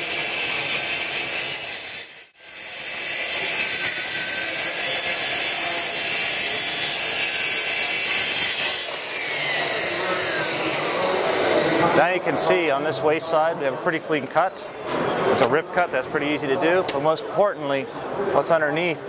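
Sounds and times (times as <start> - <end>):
track saw cutting wood: 0.0 - 12.2.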